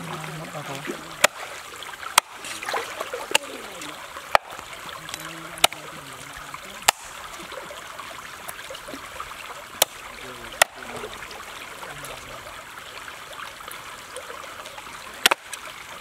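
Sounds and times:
stream trickling: 0:00.0 - 0:16.0
cleaver chopping on wooden block: 0:01.2 - 0:01.4, 0:02.2 - 0:02.4, 0:04.3 - 0:04.6, 0:05.6 - 0:05.8, 0:06.8 - 0:07.2.

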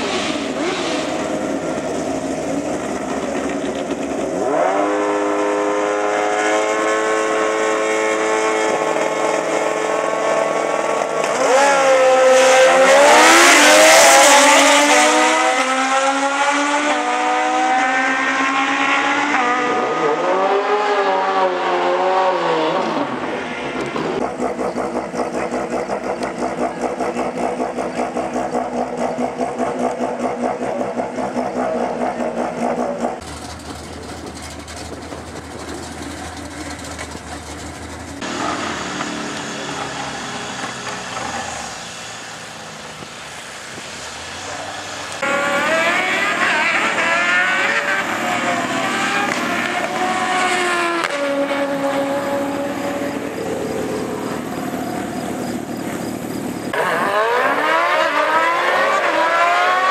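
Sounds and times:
motorcycles revving and accelerating: 0:00.0 - 0:59.9
motorcycle engine pulsing: 0:23.8 - 0:41.2.

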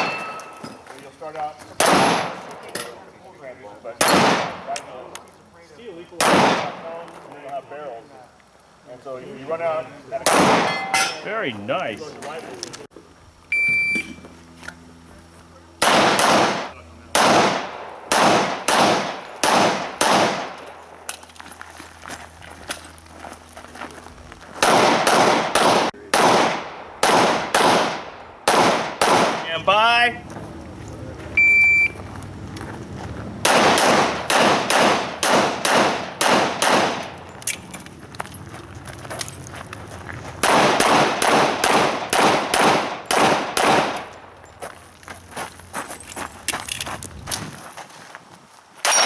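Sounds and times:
handgun shots: 0:01.8 - 0:02.4, 0:15.8 - 0:20.6, 0:24.6 - 0:29.4, 0:33.4 - 0:37.6, 0:40.4 - 0:44.1
shot timer beep: 0:13.5 - 0:14.2, 0:31.4 - 0:32.0.

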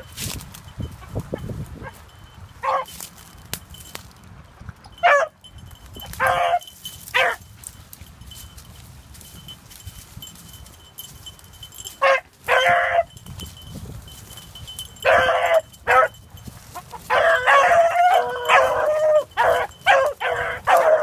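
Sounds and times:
dogs baying: 0:04.9 - 0:07.5, 0:11.6 - 0:13.3, 0:14.8 - 0:21.0.

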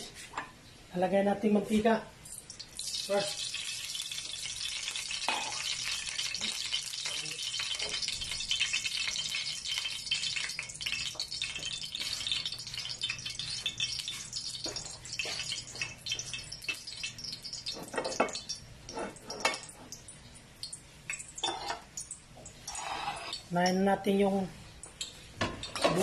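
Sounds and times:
oil sizzling in a frying pan: 0:02.2 - 0:23.8
kitchenware clicks and knocks: 0:25.4 - 0:26.0.

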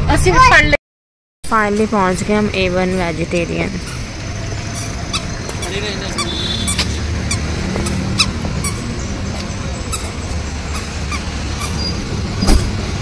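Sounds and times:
street traffic hum: 0:00.0 - 0:00.8, 0:01.4 - 0:13.0
squeaky shoes squeaking: 0:03.8 - 0:12.1.

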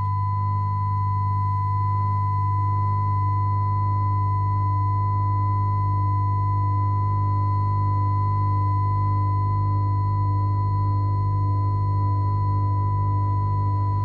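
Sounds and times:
steady high ringing tone: 0:00.0 - 0:14.0.

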